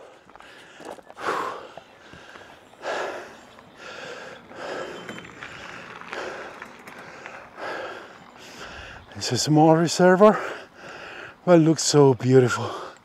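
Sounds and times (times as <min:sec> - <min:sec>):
man breathing hard: 0:00.0 - 0:09.1, 0:10.3 - 0:11.4.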